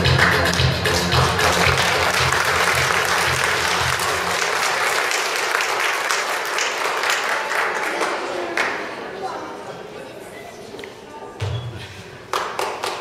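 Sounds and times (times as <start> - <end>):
backing music: 0.0 - 4.4
audience applauding: 0.1 - 8.8, 12.3 - 13.0.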